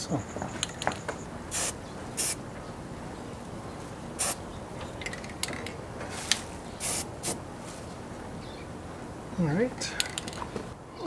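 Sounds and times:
spray can hissing: 0:01.5 - 0:02.4, 0:06.2 - 0:07.4.

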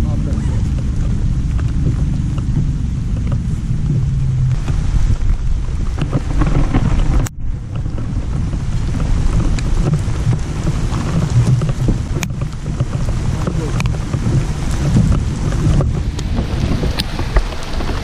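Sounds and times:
rain taps: 0:00.0 - 0:18.0
wind buffeting microphone: 0:00.0 - 0:18.0.

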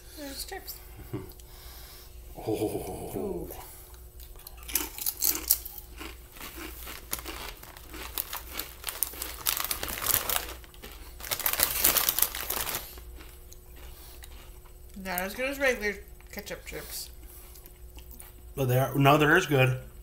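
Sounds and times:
chip bag crinkling: 0:04.3 - 0:14.5.

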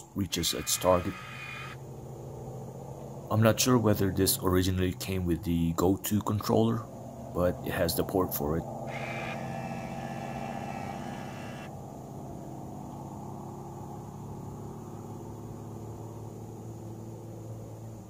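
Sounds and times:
high motor whine: 0:00.0 - 0:03.3, 0:06.8 - 0:11.8
motor hum: 0:00.0 - 0:03.3, 0:08.6 - 0:11.8.

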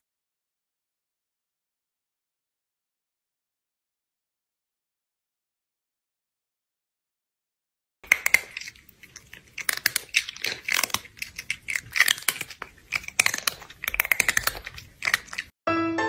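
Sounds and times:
crunchy chewing: 0:08.0 - 0:15.6.

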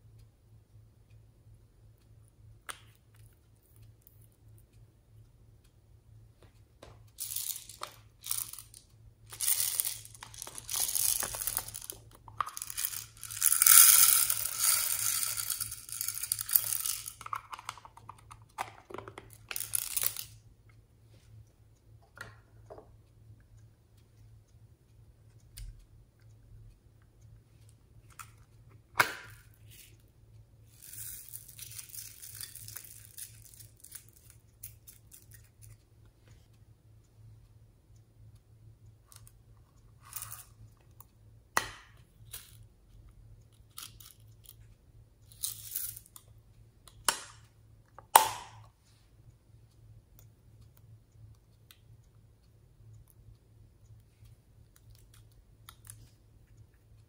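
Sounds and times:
foam beads tipped into glass tray: 0:09.4 - 0:17.2.

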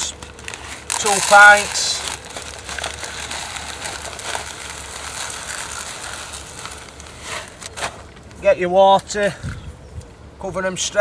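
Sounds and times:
pellets ticking into a tub: 0:00.0 - 0:07.8
plastic bag crinkling: 0:00.0 - 0:08.4.

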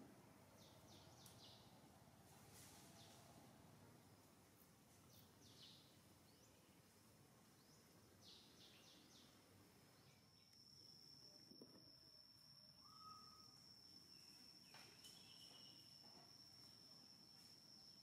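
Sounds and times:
high-pitched insect drone: 0:10.7 - 0:18.0
bird chirps: 0:12.8 - 0:16.2.

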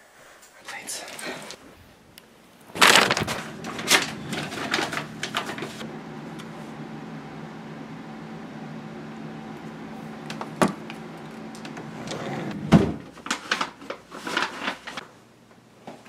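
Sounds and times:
steady low hum: 0:00.9 - 0:13.1
hands rummaging through clothes: 0:02.7 - 0:05.8, 0:13.1 - 0:15.0
drawer shutting knock: 0:11.9 - 0:13.1.

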